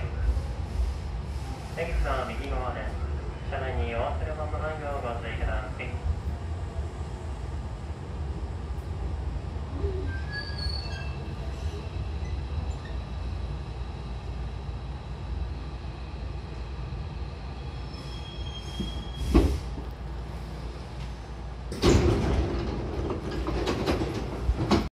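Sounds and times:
train rumbling to a stop: 0.0 - 24.9
sliding doors hissing open: 18.0 - 19.8.

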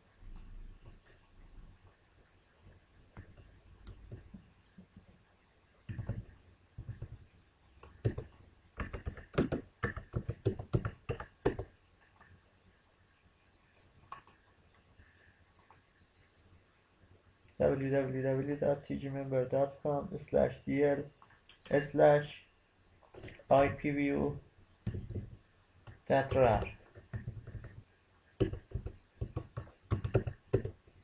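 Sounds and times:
keyboard typing: 5.8 - 12.3, 13.7 - 14.5, 23.2 - 30.8.

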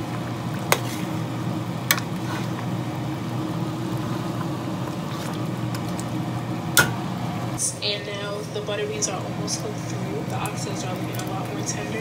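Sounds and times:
steady low hum: 0.0 - 12.0
spoon stirring stew in pot: 0.5 - 1.2.

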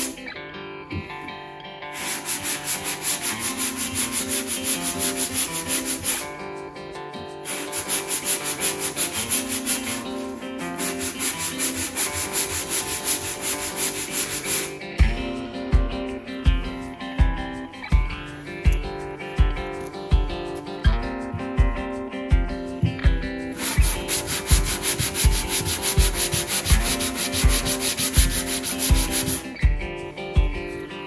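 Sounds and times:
sanding block rubbing: 1.9 - 6.3, 7.5 - 14.8, 23.5 - 29.6.

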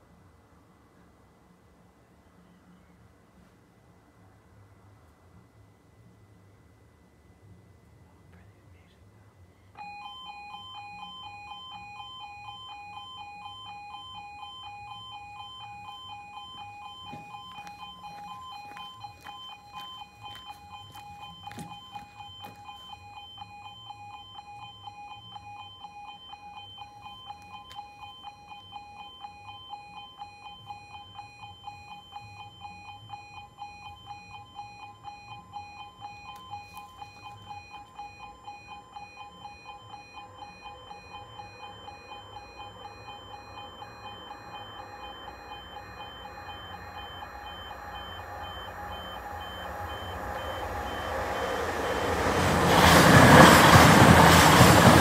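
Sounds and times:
level crossing two-tone warning alarm: 9.7 - 55.0.

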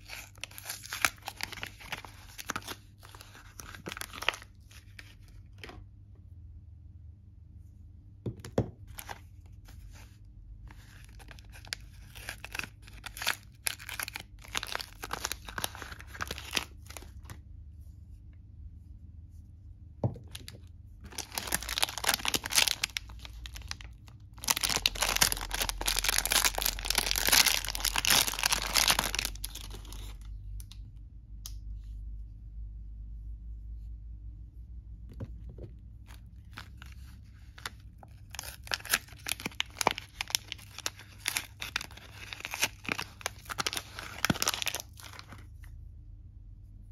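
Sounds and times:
packaging tearing and rustling: 0.0 - 5.3, 10.7 - 17.4, 20.3 - 30.3, 36.1 - 45.4.

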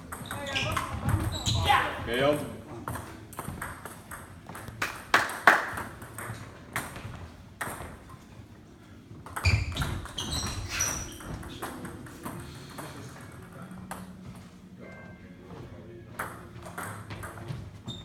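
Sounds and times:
high squeaks: 0.2 - 1.8, 9.4 - 11.6.

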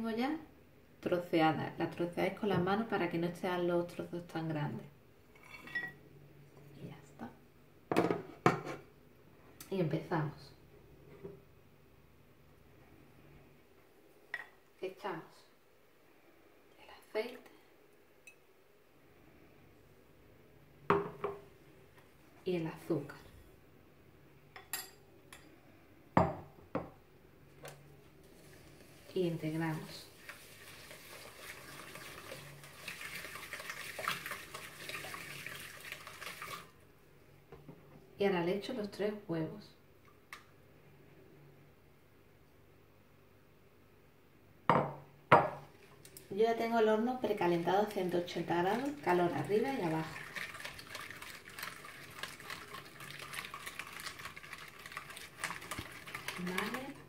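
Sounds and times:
whisk sloshing batter: 28.3 - 36.8, 47.4 - 57.0
whisk beating in glass bowl: 48.3 - 57.0.

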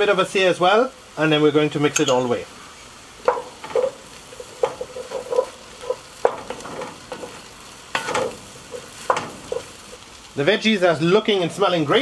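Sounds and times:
vegetables sizzling in a pot: 0.0 - 12.0
wooden spoon scraping a pot: 3.3 - 10.0.

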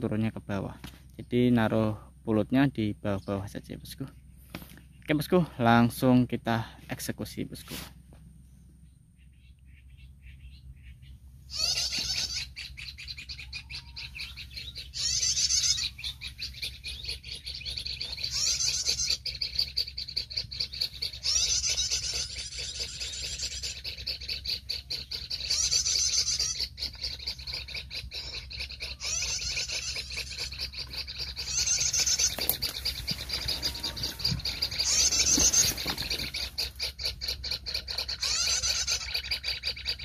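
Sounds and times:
harsh chattering bird calls: 8.8 - 40.0.

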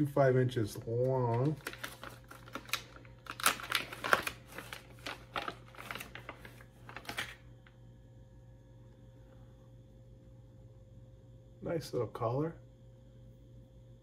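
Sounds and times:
faint steady hum: 0.0 - 14.0
plastic packaging crinkling: 0.8 - 7.8.

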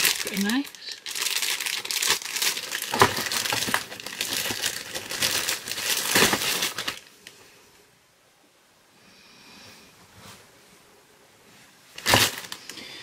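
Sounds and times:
plastic bag crinkling: 0.0 - 7.1, 12.0 - 12.9.

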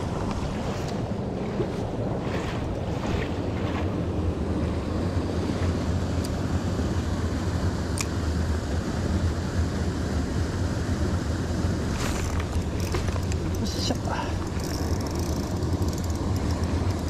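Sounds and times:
wind rumble on microphone: 0.0 - 17.0
faint ticks: 14.4 - 17.0.

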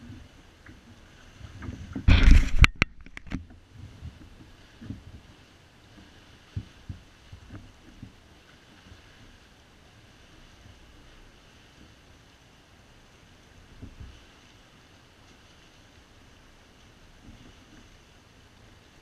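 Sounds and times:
soft knocks against kayak: 0.0 - 9.4, 13.7 - 14.3, 17.1 - 17.9
camera rubbing scrape: 1.9 - 3.4.

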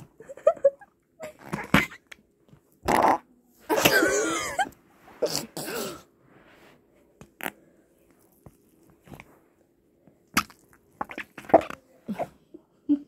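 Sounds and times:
fart noises: 1.3 - 2.1, 2.8 - 3.3, 10.4 - 12.3.

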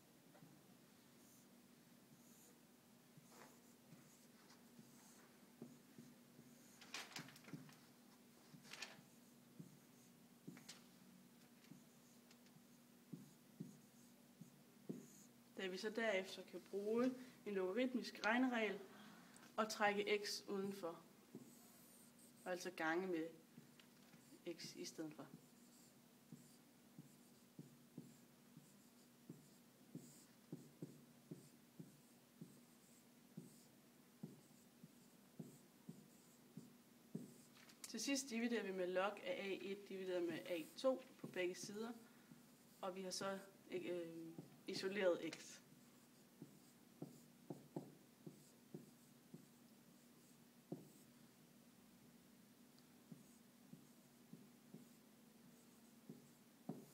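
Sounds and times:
faint steady hum: 0.0 - 56.9
marker writing on whiteboard: 3.2 - 6.8, 8.4 - 10.9, 11.7 - 15.3, 21.3 - 51.1, 53.0 - 56.9
marker squeaking on whiteboard: 25.3 - 37.5.

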